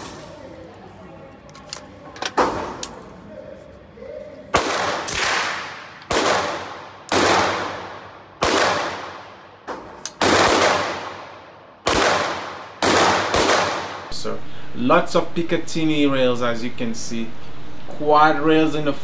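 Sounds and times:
suppressed gunshots with echo: 4.5s - 14.1s.

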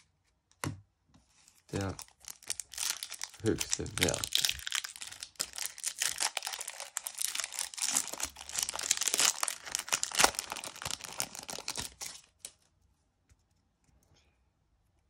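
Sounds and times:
foil wrapper crinkling and tearing: 1.7s - 12.6s.

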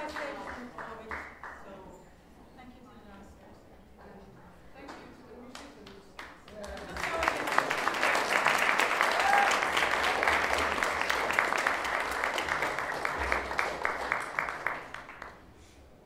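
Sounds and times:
audience applauding: 6.5s - 15.5s.

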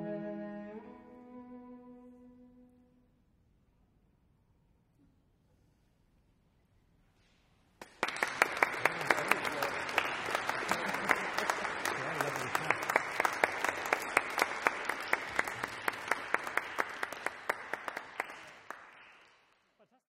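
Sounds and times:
loud single claps: 7.8s - 19.4s
audience applauding: 7.8s - 19.7s.

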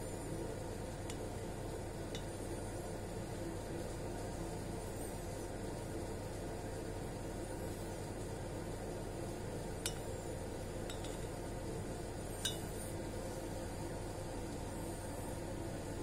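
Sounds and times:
steady background hiss: 0.0s - 16.0s
clinks on glass beaker: 10.9s - 11.3s, 12.4s - 12.7s.

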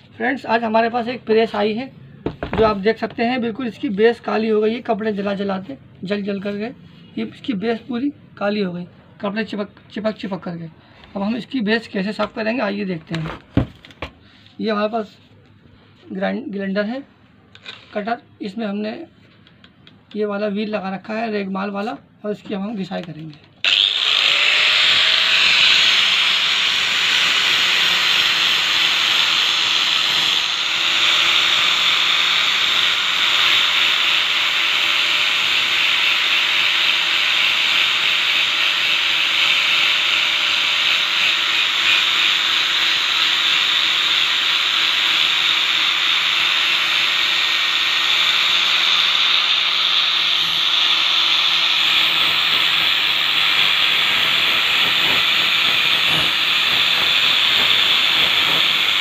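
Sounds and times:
grinder sanding metal: 23.7s - 59.0s.

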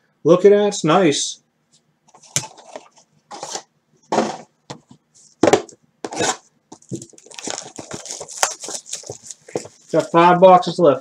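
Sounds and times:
pack wrapper crinkling: 6.2s - 10.3s.

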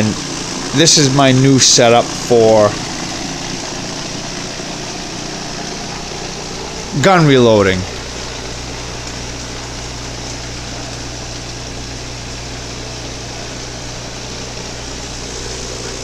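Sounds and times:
vibratory tumbler humming and hissing: 0.0s - 16.0s.

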